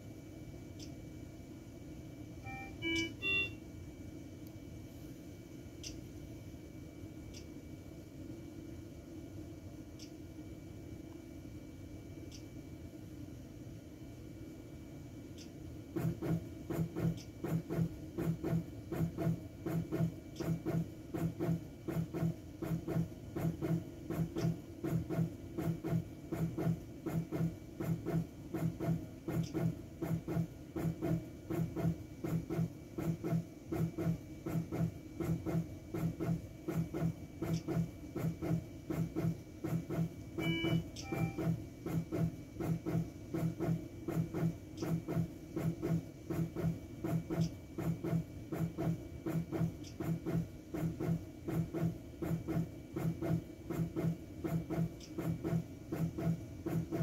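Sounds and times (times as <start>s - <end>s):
short beeps: 2.4s - 3.6s, 40.4s - 41.5s
balloon pump pulsing: 16.0s - 57.0s.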